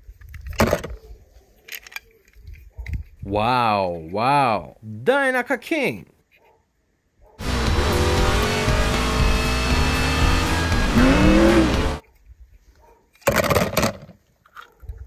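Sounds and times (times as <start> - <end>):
music: 7.4 - 12.0
race car engines at speed: 7.4 - 12.0.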